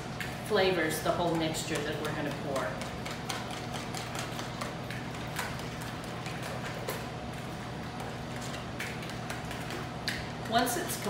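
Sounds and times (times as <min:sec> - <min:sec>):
whisk clicking against bowl: 0:01.3 - 0:07.0.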